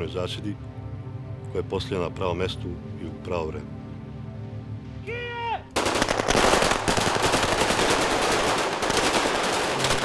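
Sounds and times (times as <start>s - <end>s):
automatic rifle fire: 5.8s - 10.0s.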